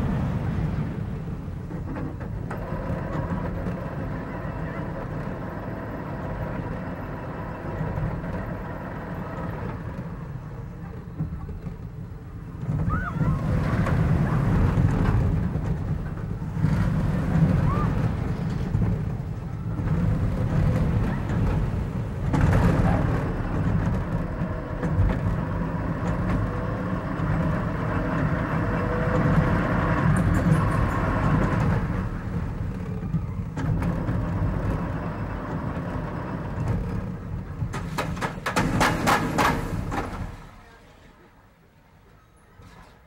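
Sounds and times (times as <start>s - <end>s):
roller coaster rumbling on track: 0.0s - 43.0s
wind on microphone: 12.0s - 37.8s.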